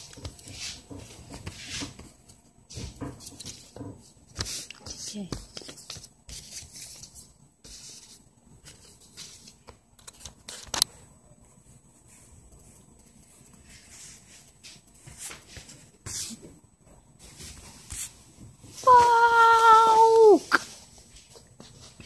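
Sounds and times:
paper rustling: 4.3 - 10.9.

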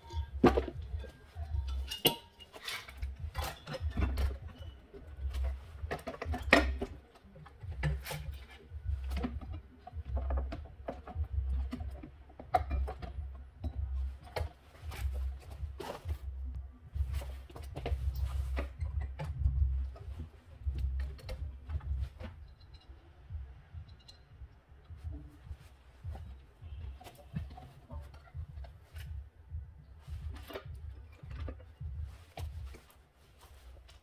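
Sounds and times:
metal knocks and clinks: 0.0 - 16.2.

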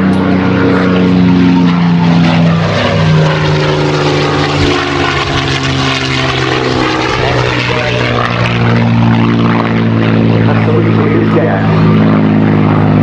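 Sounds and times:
propeller aircraft engine passing: 0.0 - 13.0.

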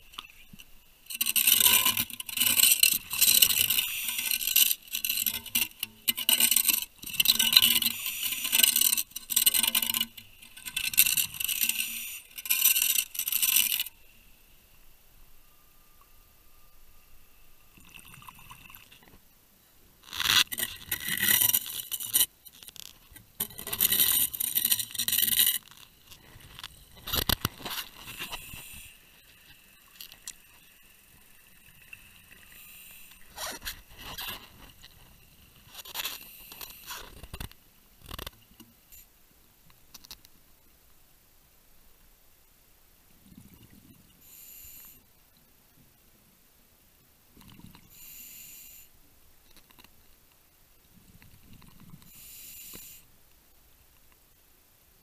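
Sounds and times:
camera scraping against wooden pile: 20.1 - 30.3.

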